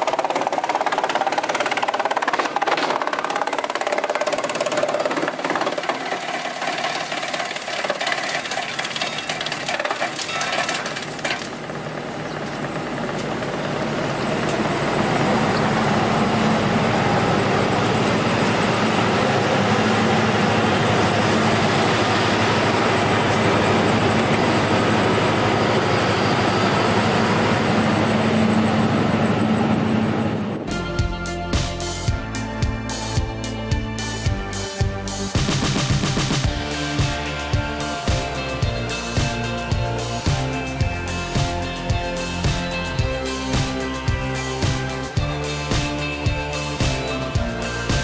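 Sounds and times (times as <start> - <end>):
wood chipper chipping log: 0.0 - 13.6
wood chipper running empty: 0.0 - 28.6.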